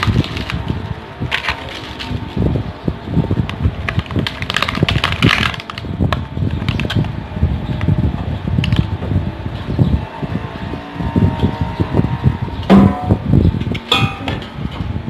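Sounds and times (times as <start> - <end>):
plastic packaging crinkling: 0.0 - 2.4, 3.8 - 7.1.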